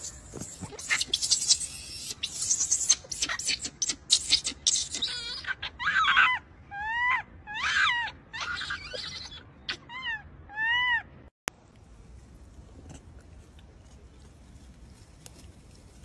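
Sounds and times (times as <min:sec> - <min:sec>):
baby monkey crying: 0:00.0 - 0:11.1.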